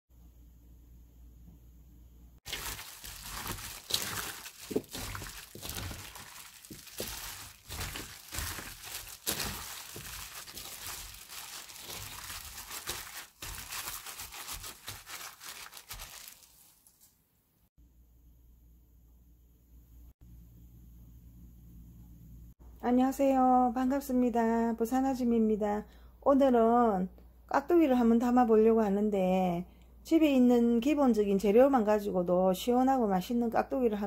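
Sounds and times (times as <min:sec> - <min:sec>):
plastic glove crinkling: 0:02.4 - 0:17.2
wet radish cubes crunching: 0:02.5 - 0:16.6.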